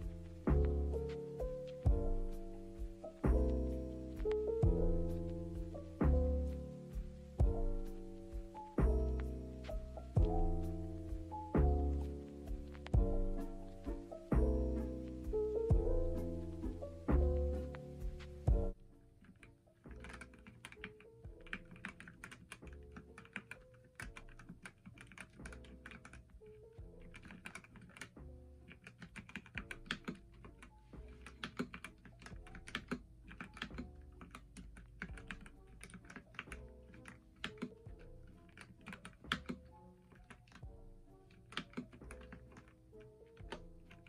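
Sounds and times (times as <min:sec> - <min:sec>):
background music: 0:00.0 - 0:44.0
mechanical keyboard typing: 0:19.2 - 0:40.7, 0:41.3 - 0:44.0.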